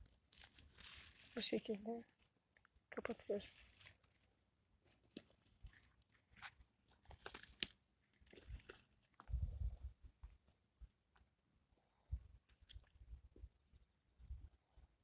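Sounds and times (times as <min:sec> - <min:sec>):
pine needles and twigs crackling: 0:00.0 - 0:11.4.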